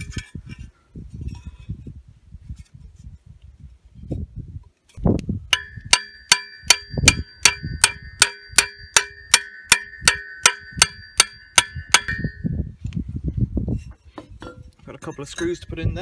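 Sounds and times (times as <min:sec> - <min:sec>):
ringing metal clinks: 0:05.6 - 0:12.6.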